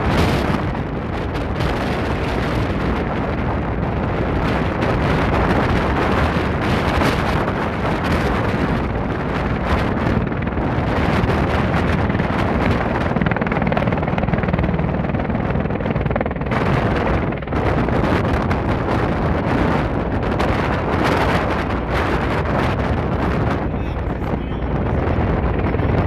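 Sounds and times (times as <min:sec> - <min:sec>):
rapid pulsing rotor blades: 0:00.0 - 0:26.0
tiltrotor aircraft hovering: 0:00.0 - 0:26.0.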